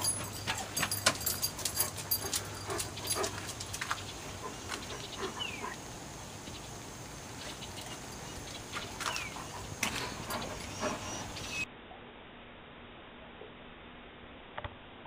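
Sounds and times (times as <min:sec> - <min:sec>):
dog whining softly: 0:09.1 - 0:11.7.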